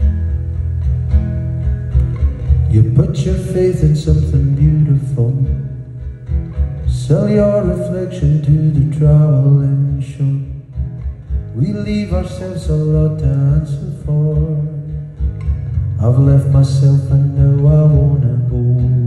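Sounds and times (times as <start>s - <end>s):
acoustic guitar strumming: 0.0s - 19.0s
man singing: 2.7s - 5.9s, 6.8s - 10.8s, 11.5s - 15.2s, 15.8s - 19.0s.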